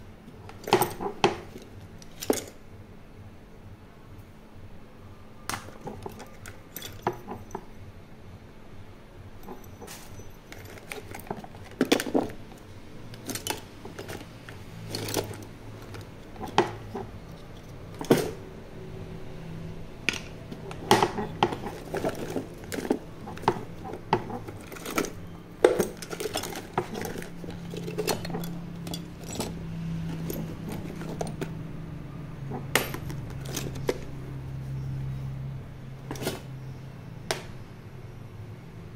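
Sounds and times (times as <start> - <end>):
small objects clinking in a case: 9.4 - 18.4, 21.0 - 31.6, 32.5 - 34.2.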